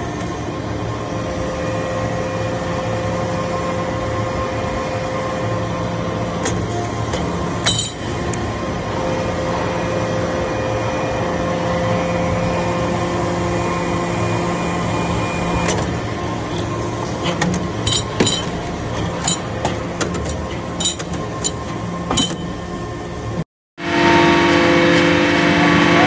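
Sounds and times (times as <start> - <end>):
hydraulic press hum: 23.8 - 26.0.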